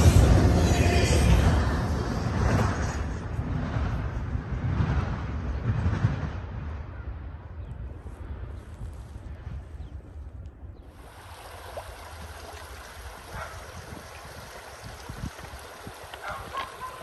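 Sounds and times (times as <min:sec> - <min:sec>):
wind buffeting microphone: 0:00.0 - 0:17.0
creek water rippling over rocks: 0:10.9 - 0:17.0.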